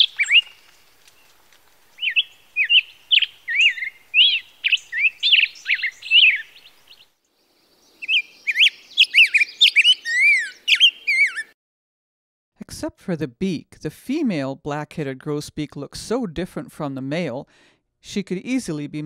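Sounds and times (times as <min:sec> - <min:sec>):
bird singing whistled phrases: 0:00.0 - 0:00.6, 0:02.0 - 0:07.0, 0:08.0 - 0:11.6.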